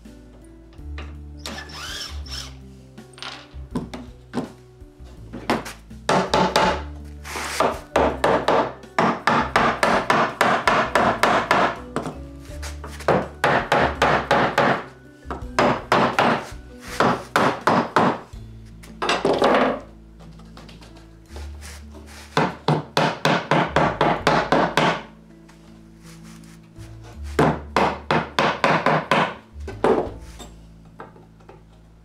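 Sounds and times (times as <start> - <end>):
mallet knocking on wood: 5.3 - 6.9, 7.6 - 12.2, 13.0 - 18.2, 22.4 - 25.1, 27.4 - 30.2.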